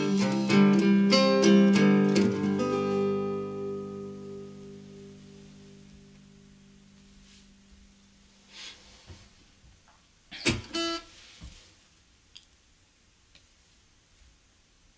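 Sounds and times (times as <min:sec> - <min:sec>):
guitar chord ringing: 0:00.0 - 0:08.6.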